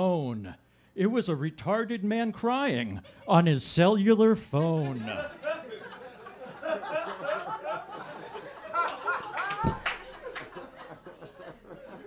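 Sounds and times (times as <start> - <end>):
audience laughing: 4.5 - 12.0.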